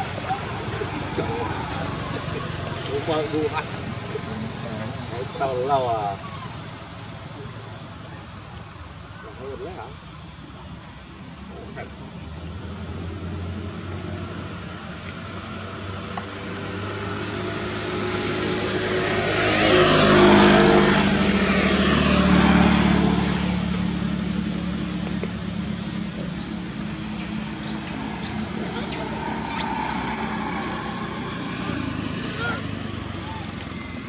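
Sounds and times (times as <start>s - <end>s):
vehicle driving past: 0.0s - 7.1s, 15.8s - 34.0s
high-pitched chirping calls: 26.4s - 31.0s.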